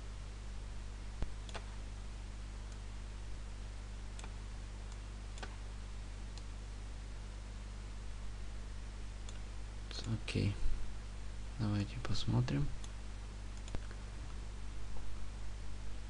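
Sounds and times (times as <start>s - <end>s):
steady low hum: 0.0s - 16.0s
computer mouse clicks: 1.2s - 1.8s, 4.1s - 5.6s, 9.2s - 10.2s, 13.6s - 14.0s.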